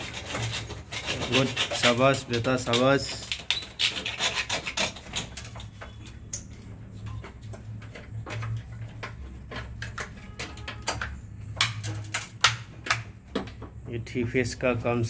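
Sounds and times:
knife scraping cable insulation: 0:00.0 - 0:06.0
wires rubbing and scraping: 0:00.0 - 0:12.5.

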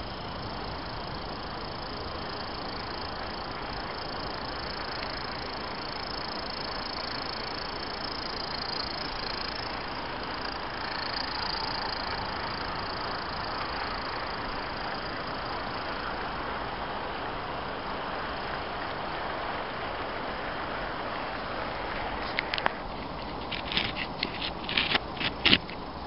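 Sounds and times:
model train running on track: 0:00.0 - 0:16.0
constant hiss: 0:00.0 - 0:26.0.

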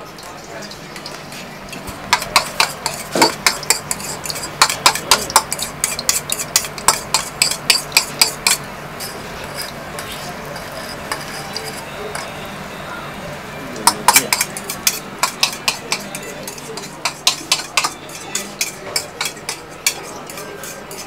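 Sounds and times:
spoon clinking against bowl: 0:00.1 - 0:08.7, 0:09.5 - 0:12.4, 0:13.8 - 0:21.0
egg sizzling in oil: 0:00.1 - 0:11.9.

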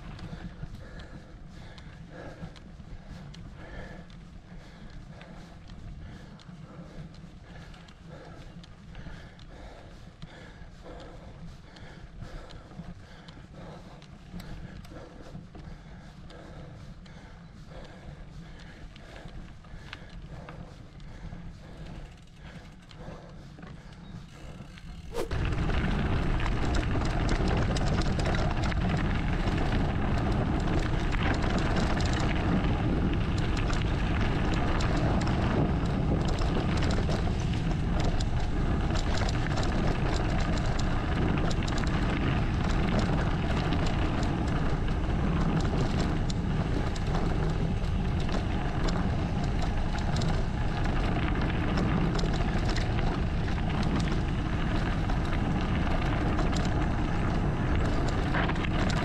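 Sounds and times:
bike rattles and clicks: 0:00.0 - 0:59.0
wind rumble on microphone: 0:00.0 - 0:59.0
tyre noise on dirt: 0:24.2 - 0:59.0.

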